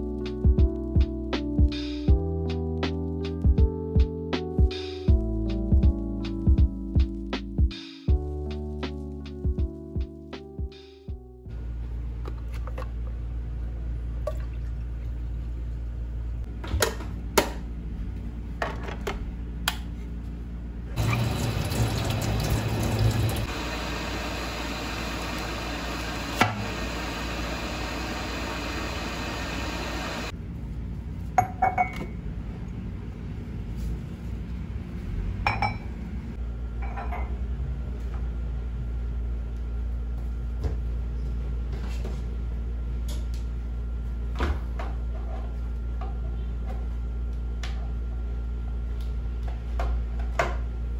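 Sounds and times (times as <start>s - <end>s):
kitchen tap running water: 21.0s - 30.3s.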